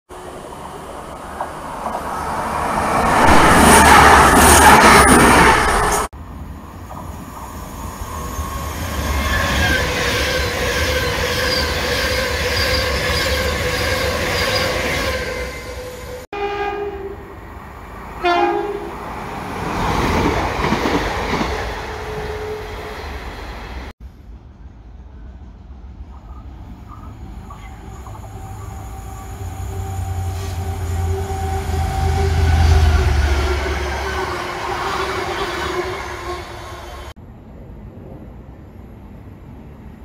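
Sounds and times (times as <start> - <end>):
train rumbling past: 0.1 - 40.0
train horn blasts: 15.0 - 17.3, 18.2 - 19.0, 29.2 - 37.0.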